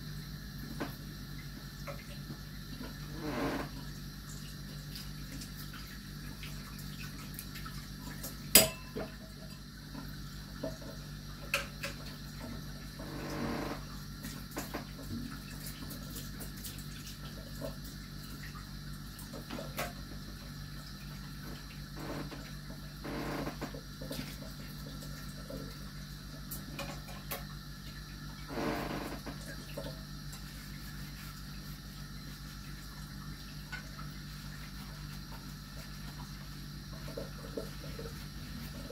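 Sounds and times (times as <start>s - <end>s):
dishes and cutlery clinking: 8.6s - 9.1s.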